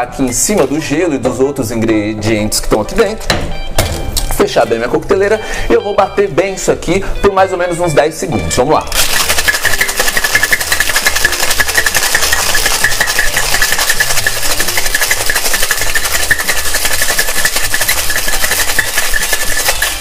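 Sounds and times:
ice rattling in cocktail shaker: 8.9s - 20.0s.

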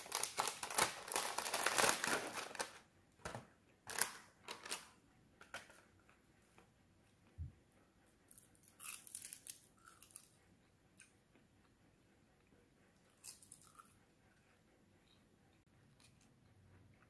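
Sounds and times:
crunching while chewing seaweed: 8.3s - 10.4s, 13.1s - 14.0s.

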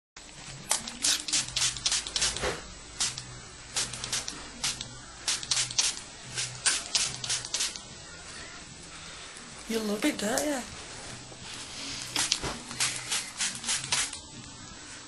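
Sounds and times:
spray bottle squirting water: 0.7s - 7.9s, 12.1s - 14.2s.

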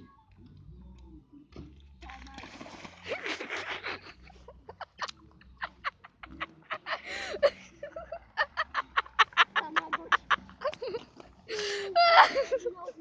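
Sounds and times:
breathy laughter: 3.0s - 13.0s.

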